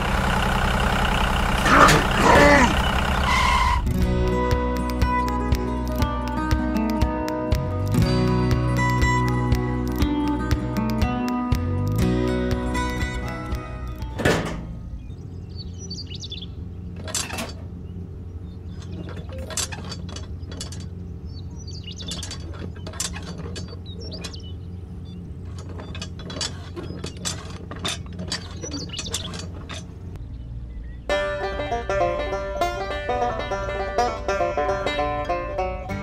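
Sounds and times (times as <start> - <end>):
low hum: 0.0 - 36.0.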